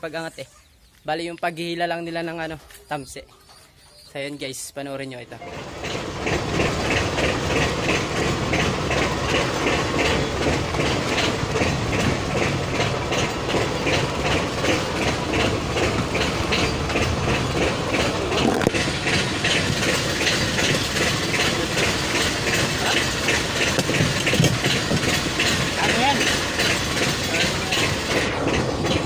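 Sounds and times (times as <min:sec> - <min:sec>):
boat engine clattering: 0:05.2 - 0:29.0.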